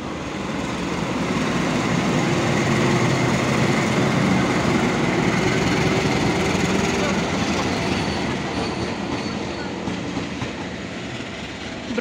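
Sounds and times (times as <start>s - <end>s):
train rolling noise: 0.0s - 12.0s.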